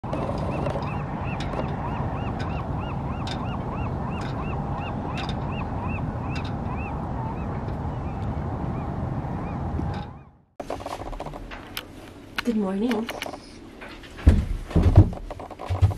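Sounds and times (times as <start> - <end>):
constant low rumble: 0.0 - 15.9
bird calling: 0.1 - 11.4.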